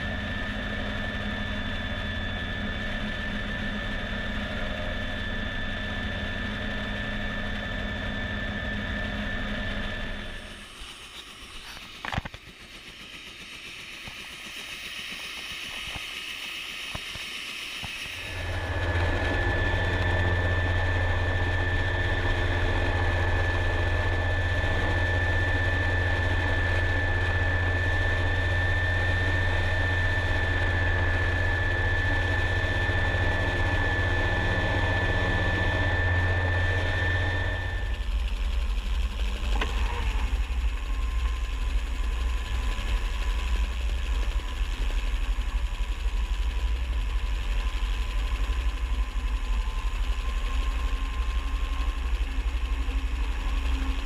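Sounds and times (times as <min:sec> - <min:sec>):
helicopter low drone: 0:00.0 - 0:54.0
high whine: 0:15.4 - 0:54.0.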